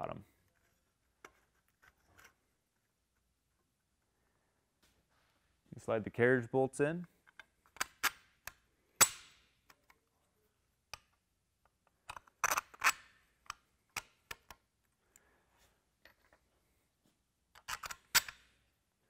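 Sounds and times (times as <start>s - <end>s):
bolts clicking into holes: 7.1s - 10.1s, 10.9s - 14.7s, 17.5s - 18.6s.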